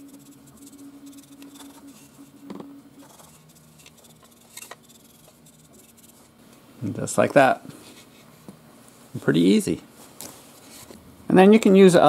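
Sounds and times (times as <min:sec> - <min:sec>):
dry brush scrubbing: 0:00.0 - 0:02.3, 0:03.0 - 0:06.4
steady low hum: 0:00.0 - 0:12.0.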